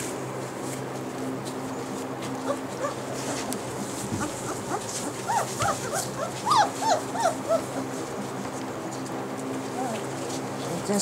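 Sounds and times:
puppies whimpering and yipping: 2.4 - 8.6, 9.6 - 10.2.

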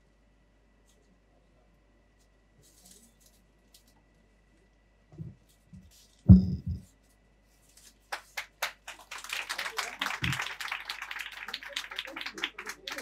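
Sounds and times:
loud low thump: 6.3 - 6.8
audience applause: 8.1 - 13.0.

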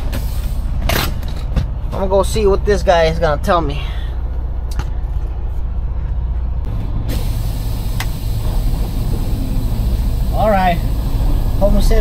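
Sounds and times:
diesel truck engine idling: 0.0 - 12.0
steady high hiss: 7.1 - 12.0.

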